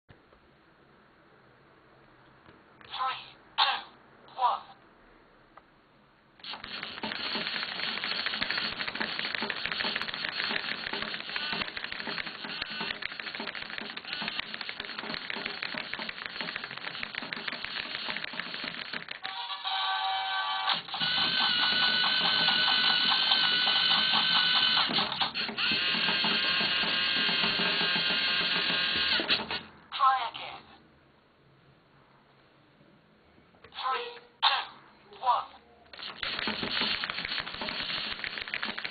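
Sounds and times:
faint room hiss: 0:00.1 - 0:06.5, 0:29.7 - 0:36.0
electric motors whirring and clicking: 0:06.4 - 0:29.6, 0:35.9 - 0:38.9.

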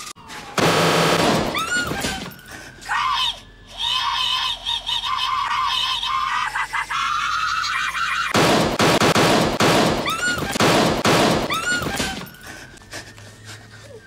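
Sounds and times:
distorted rapid gunfire: 0:00.6 - 0:01.6, 0:08.3 - 0:12.0
high-pitched scream: 0:01.4 - 0:08.4.

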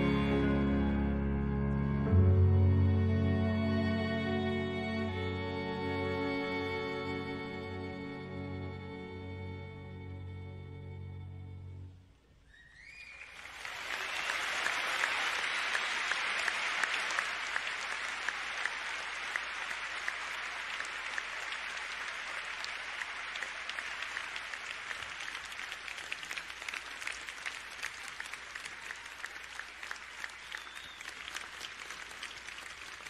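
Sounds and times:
rising whistles: 0:12.4 - 0:14.4, 0:30.2 - 0:31.4
audience applauding: 0:12.8 - 0:33.0.

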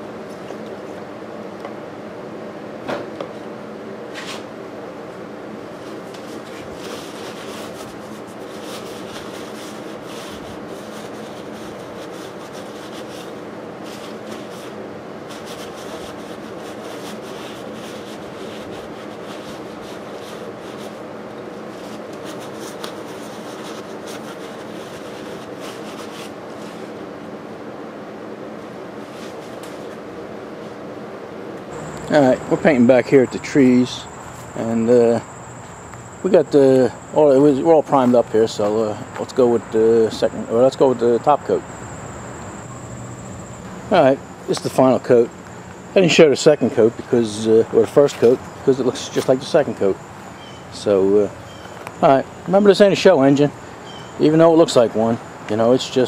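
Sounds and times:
background hum: 0:00.0 - 0:56.0
paper towels scrubbing metal: 0:06.2 - 0:27.0.

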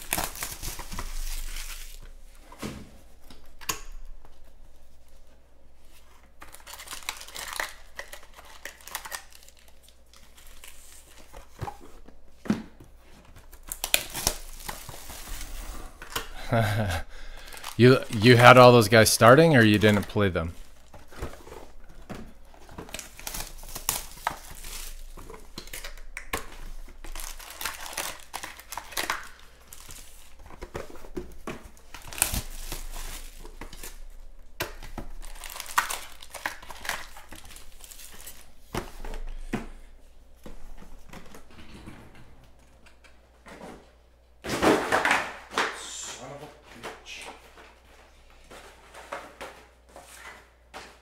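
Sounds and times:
foil packs crinkling: 0:00.0 - 0:02.2, 0:05.9 - 0:12.0, 0:13.2 - 0:39.5.

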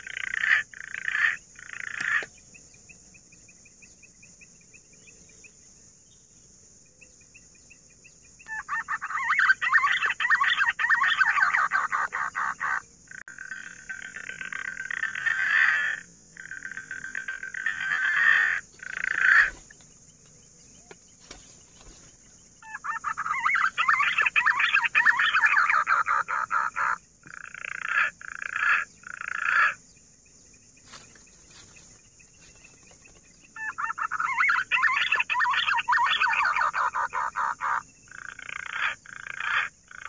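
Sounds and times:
pigeon rough warbling calls: 0:22.6 - 0:27.0, 0:33.6 - 0:37.8.

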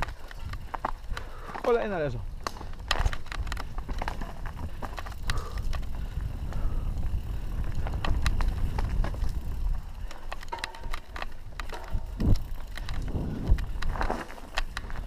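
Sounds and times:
bike rattling and clicking: 0:00.0 - 0:15.0
tyres on dirt: 0:00.0 - 0:15.0
wind on microphone: 0:02.8 - 0:10.2, 0:11.4 - 0:14.1.

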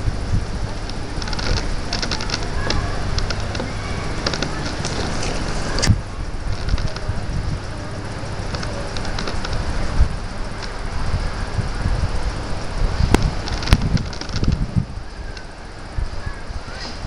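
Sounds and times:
steady low rumble: 0:00.0 - 0:17.0
slackline clicks and creaks: 0:00.3 - 0:10.9, 0:12.6 - 0:15.6.

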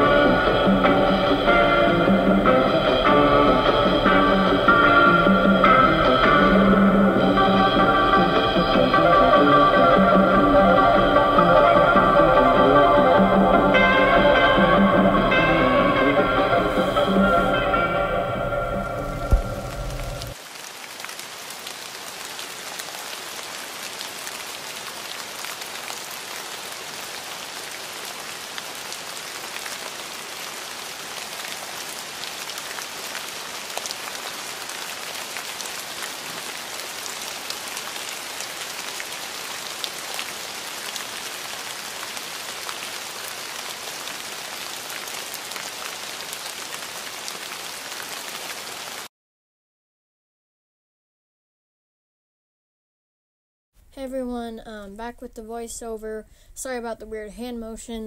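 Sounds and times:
steady rain hiss: 0:00.0 - 0:49.1
raindrops pattering: 0:18.8 - 0:49.1.

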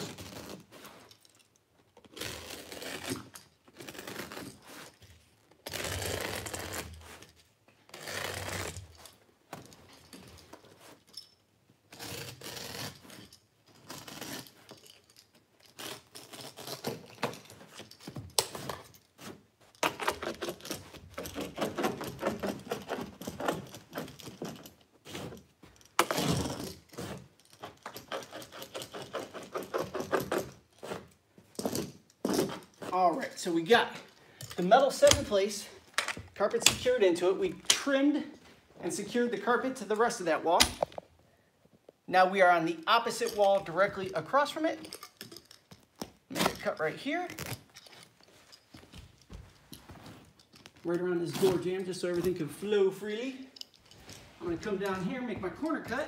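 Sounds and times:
utility knife cutting carpet: 0:07.9 - 0:08.8.

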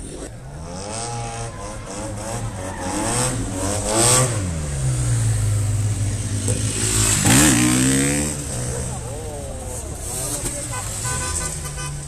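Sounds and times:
car engine revving: 0:00.0 - 0:10.6.

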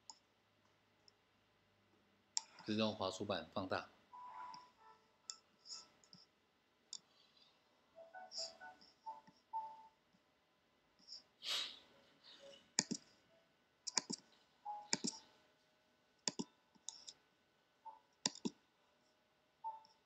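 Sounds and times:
computer mouse clicks: 0:02.4 - 0:02.6, 0:12.8 - 0:13.1, 0:13.9 - 0:14.3, 0:14.9 - 0:15.2, 0:16.2 - 0:17.2, 0:18.2 - 0:18.6
short hiss: 0:11.4 - 0:11.9.

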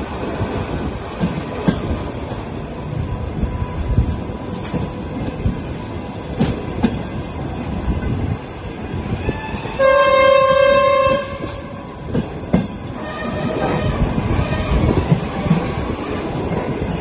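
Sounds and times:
moving train rumble: 0:00.0 - 0:17.0
train horn: 0:09.2 - 0:12.0, 0:13.0 - 0:15.0.

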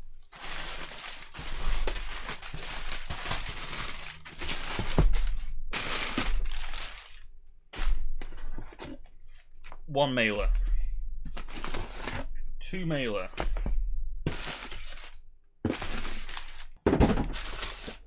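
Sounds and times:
packing paper crinkling: 0:00.2 - 0:08.0, 0:14.3 - 0:18.0.

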